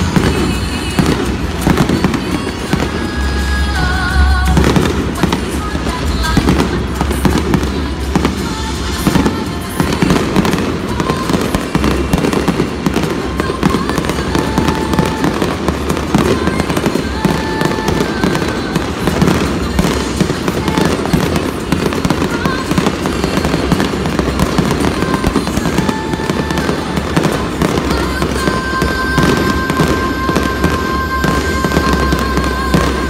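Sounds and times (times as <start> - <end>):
fireworks bangs and crackling: 0.0 - 33.0.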